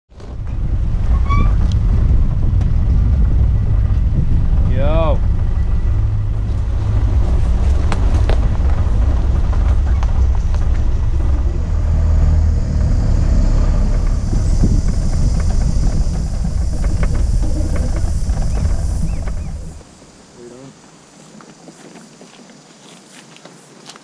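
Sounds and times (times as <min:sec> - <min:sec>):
brush scraping vehicle: 0:00.1 - 0:20.2
vehicle engine and tyres rumbling: 0:00.1 - 0:20.8.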